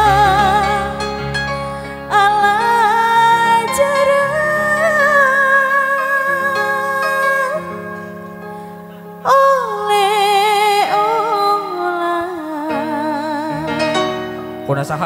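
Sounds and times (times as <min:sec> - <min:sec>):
sustained instrumental accompaniment: 0:00.0 - 0:15.0.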